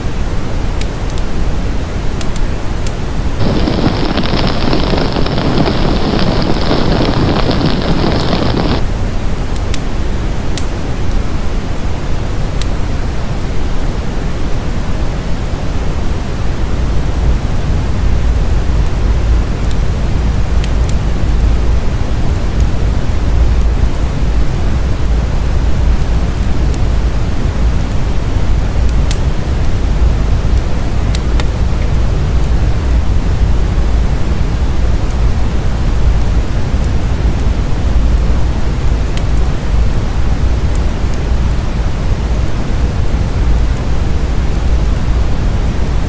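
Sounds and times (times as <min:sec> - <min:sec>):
rush of fire flames: 0:01.8 - 0:46.0
wood crackles: 0:02.2 - 0:08.8, 0:17.8 - 0:46.0.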